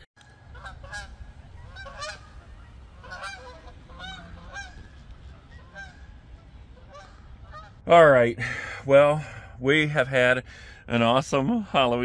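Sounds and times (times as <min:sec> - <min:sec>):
geese honking: 0:00.2 - 0:07.9.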